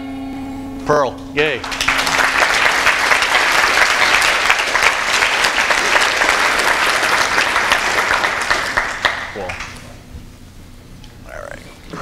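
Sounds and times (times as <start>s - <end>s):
audience applauding: 1.6s - 9.9s.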